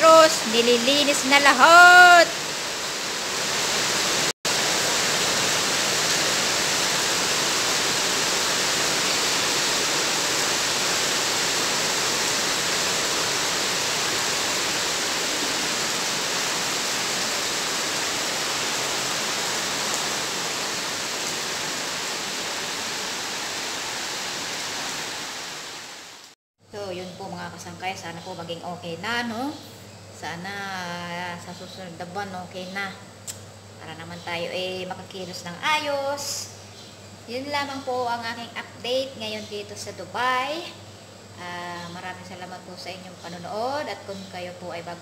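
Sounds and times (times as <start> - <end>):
heavy rain on paving: 2.4 - 26.4.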